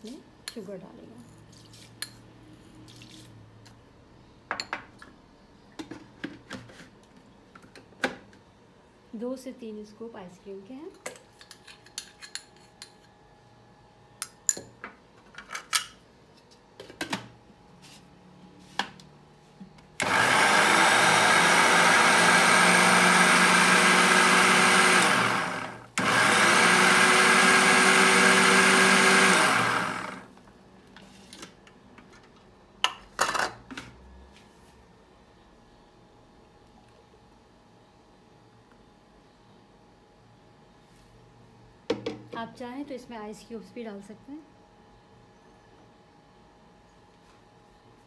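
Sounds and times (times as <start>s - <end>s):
electric blender running: 20.0s - 30.3s.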